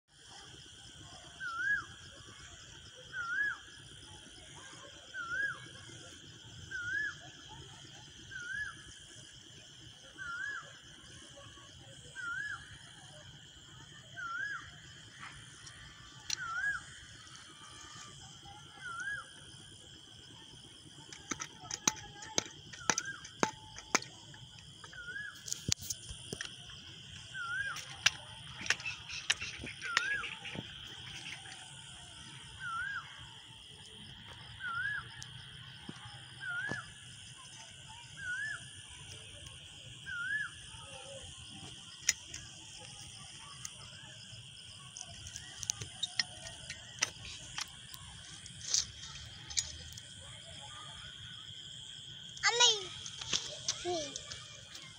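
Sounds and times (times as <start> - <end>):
insects buzzing: 0.1 - 54.9
sharp clicks and knocks: 21.0 - 26.8.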